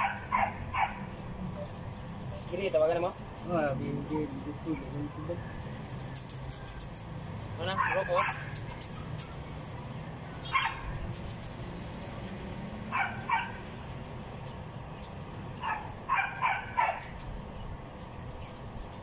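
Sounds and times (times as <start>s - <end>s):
dog barking: 0.0s - 1.1s, 7.8s - 8.5s, 10.5s - 10.9s, 12.9s - 13.6s, 15.6s - 17.1s.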